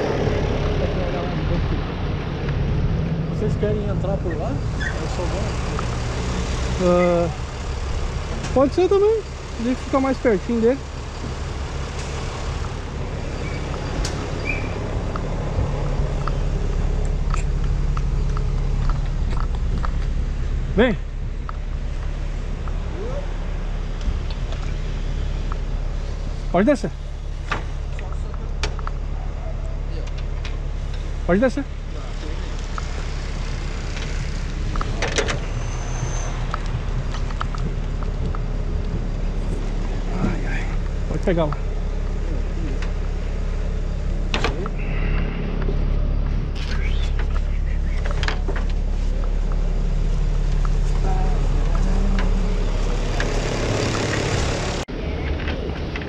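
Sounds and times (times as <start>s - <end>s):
fire truck engine idling: 6.8s - 54.9s.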